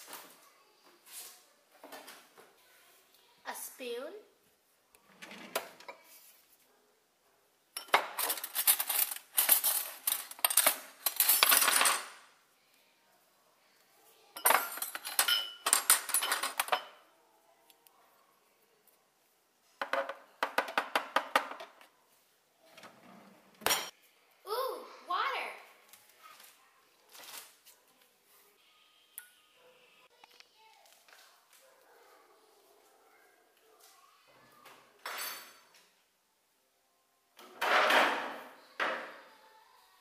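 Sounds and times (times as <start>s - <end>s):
cutlery clattering in drawer: 7.8s - 12.2s, 14.4s - 17.0s, 23.6s - 23.9s, 37.4s - 38.4s.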